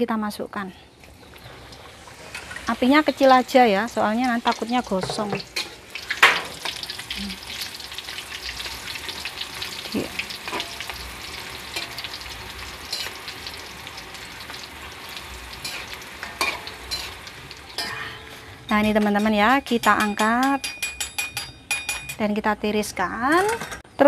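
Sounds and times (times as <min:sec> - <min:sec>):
food sizzling in hot oil: 0:01.1 - 0:21.0
metal spatula scraping wok: 0:01.4 - 0:03.2, 0:04.5 - 0:07.0, 0:10.2 - 0:21.6.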